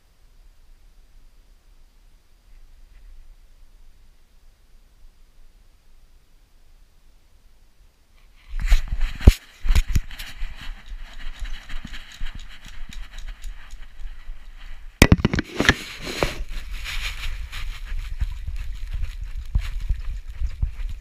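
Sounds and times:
camera housing rubbing and knocking: 8.6 - 21.0
dog's clicking footsteps: 8.8 - 15.4, 16.2 - 21.0.

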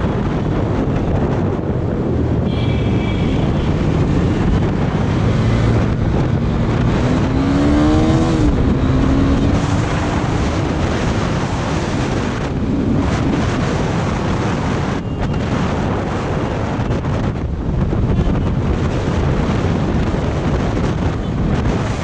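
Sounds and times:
road noise: 0.0 - 22.0
wind buffeting microphone: 0.0 - 22.0
motorcycle engine: 1.9 - 13.6.

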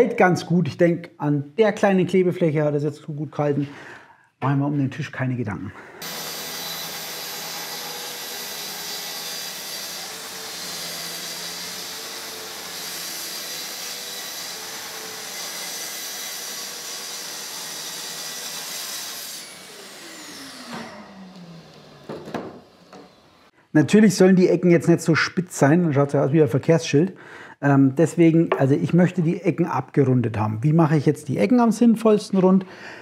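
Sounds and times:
dust extractor running: 6.0 - 18.5, 19.4 - 23.4
saw motor winding down: 6.0 - 23.5
track saw cutting wood: 6.0 - 23.5.

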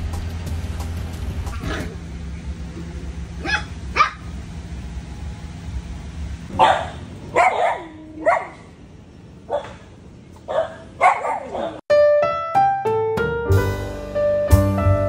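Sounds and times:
dog barking: 3.4 - 4.3, 6.5 - 8.7, 9.5 - 9.9, 10.5 - 11.8.

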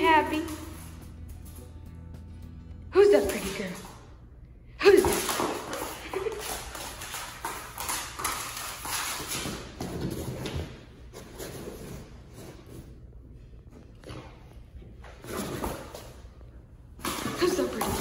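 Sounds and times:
dog claws clicking on floor: 5.0 - 10.8.

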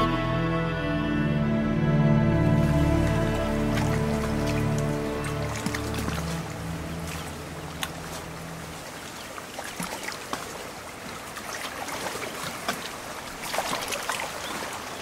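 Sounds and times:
background music: 0.0 - 8.8
stream running over stones: 2.4 - 15.0
water splashes and drips: 2.4 - 15.0.

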